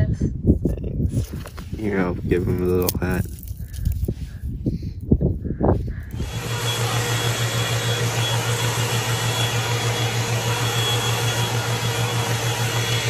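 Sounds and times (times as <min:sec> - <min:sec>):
hair dryer air rush: 0:06.1 - 0:13.0
low motor hum: 0:06.1 - 0:13.0.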